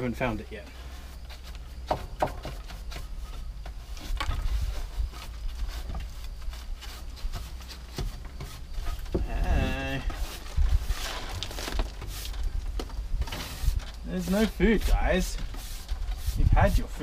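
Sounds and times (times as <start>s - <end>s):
brush sweeping wooden floor: 0.7s - 12.6s, 13.2s - 17.0s
sharp knocks: 1.8s - 2.8s.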